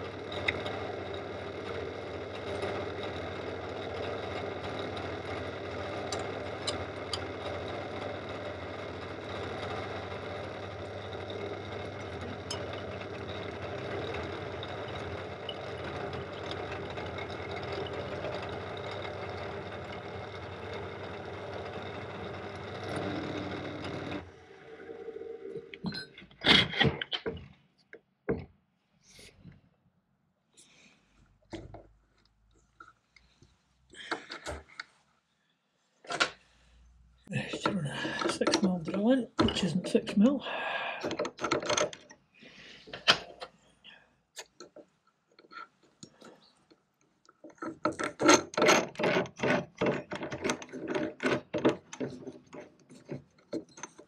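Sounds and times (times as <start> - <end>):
drill motor hum with cutting: 0.0 - 25.6.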